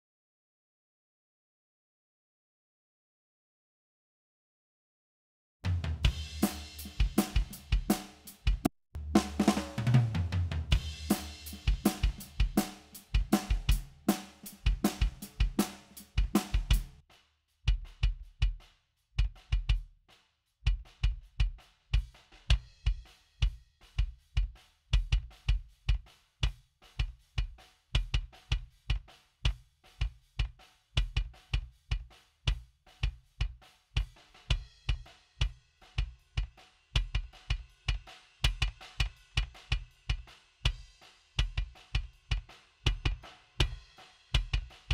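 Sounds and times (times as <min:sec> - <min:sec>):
drum kit playing a beat: 0:05.6 - 0:17.0, 0:17.7 - 0:19.9, 0:20.7 - 0:44.9
kick drum thumps: 0:05.7 - 0:13.9, 0:14.6 - 0:17.0, 0:19.2 - 0:19.8, 0:20.7 - 0:23.0, 0:24.0 - 0:26.0, 0:30.0 - 0:32.6, 0:41.4 - 0:43.8, 0:44.4 - 0:44.9.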